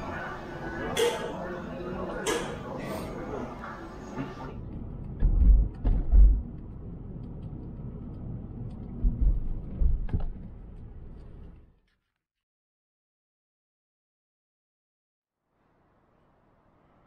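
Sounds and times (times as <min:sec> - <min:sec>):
deep thumps: 0:05.2 - 0:06.6, 0:09.0 - 0:10.6.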